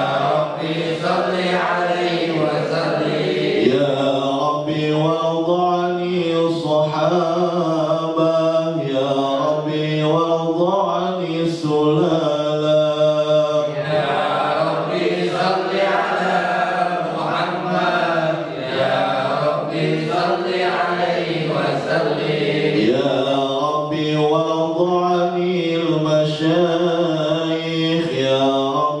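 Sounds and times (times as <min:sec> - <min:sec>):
man chanting into a microphone: 0:03.6 - 0:15.8, 0:22.8 - 0:29.0.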